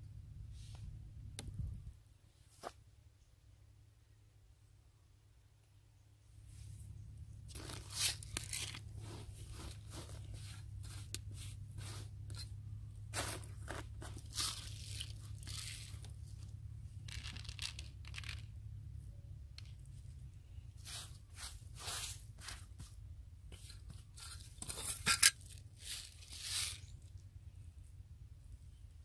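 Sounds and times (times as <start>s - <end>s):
steady low hum: 6.0s - 29.0s
scratchy crunching and rustling: 7.5s - 18.5s, 20.8s - 27.2s.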